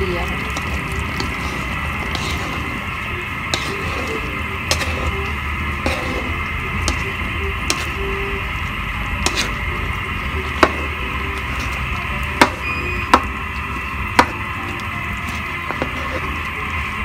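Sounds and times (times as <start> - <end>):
spatula knocking metal pot: 5.8 - 8.0, 10.5 - 11.0, 12.4 - 13.5, 14.1 - 14.5.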